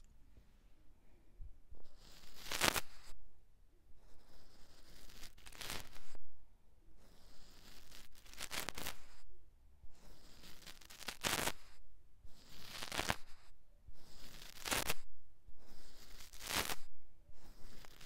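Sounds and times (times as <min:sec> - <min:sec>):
brush swept across microphone: 0:04.9 - 0:06.2, 0:07.5 - 0:09.3, 0:15.7 - 0:16.9.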